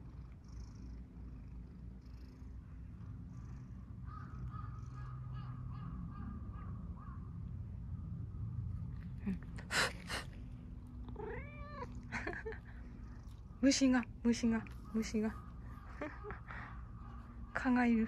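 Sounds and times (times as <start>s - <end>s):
low steady hum: 0.0s - 18.0s
cat meowing: 11.0s - 12.1s.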